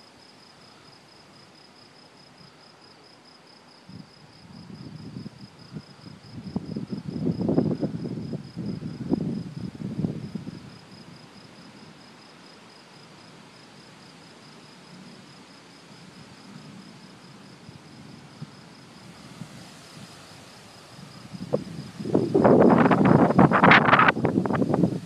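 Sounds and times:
crickets chirping: 0:00.0 - 0:25.0
soft hiss: 0:00.0 - 0:25.0
loud crackling rumbling noise: 0:19.0 - 0:25.0.

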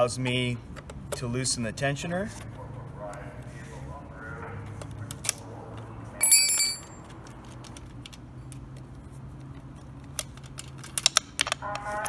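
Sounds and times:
metal wrench clinking on asphalt: 0:06.2 - 0:07.1.

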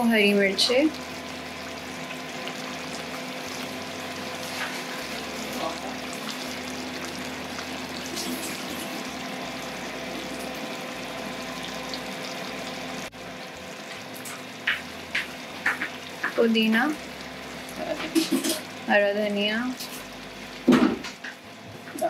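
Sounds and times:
gravy bubbling and sizzling: 0:00.0 - 0:22.0.

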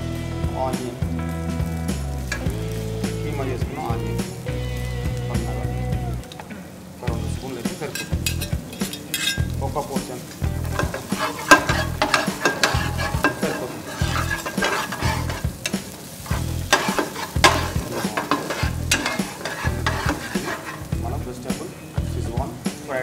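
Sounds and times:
vegetables sizzling in oil: 0:00.0 - 0:23.0
metal spatula scraping a pan: 0:07.9 - 0:09.6, 0:10.6 - 0:21.0.

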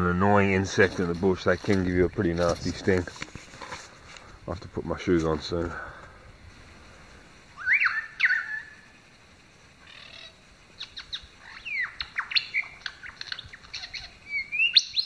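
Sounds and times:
birds chirping: 0:00.0 - 0:03.1, 0:03.8 - 0:15.0.

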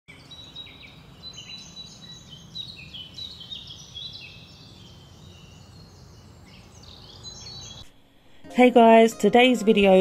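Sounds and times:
birds chirping and singing: 0:00.1 - 0:07.9.

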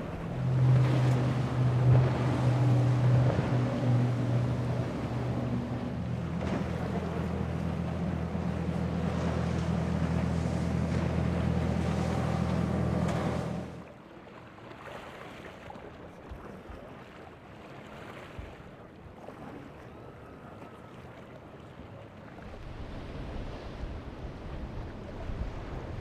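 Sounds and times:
boat engines droning: 0:00.0 - 0:26.0
spray and choppy water: 0:00.0 - 0:26.0
surf: 0:00.0 - 0:26.0
wind on microphone: 0:22.4 - 0:26.0.

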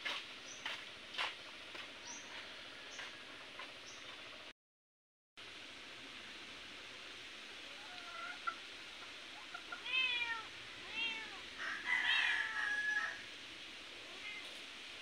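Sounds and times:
cat meowing: 0:09.8 - 0:11.4.

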